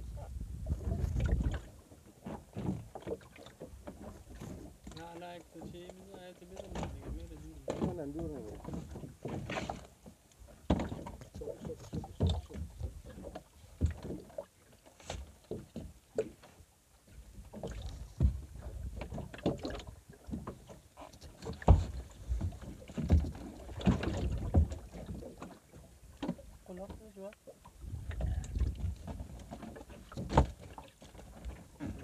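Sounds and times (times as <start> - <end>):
wind rumble on microphone: 0.0 - 1.9, 6.7 - 9.2, 17.3 - 19.3, 27.8 - 30.6
water slapping boat hull: 0.0 - 32.0
knocks on boat: 10.6 - 14.2, 17.6 - 20.6, 21.4 - 25.2, 30.1 - 31.2.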